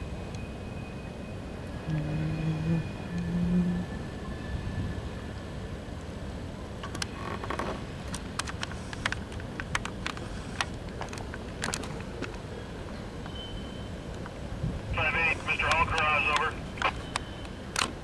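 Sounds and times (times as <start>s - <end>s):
sharp irregular clicks and knocks: 6.8s - 12.4s.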